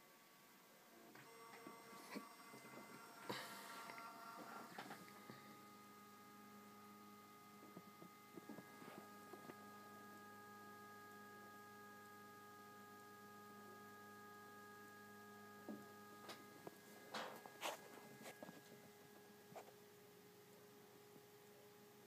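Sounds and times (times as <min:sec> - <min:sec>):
film scanner motor humming: 0:01.2 - 0:19.3.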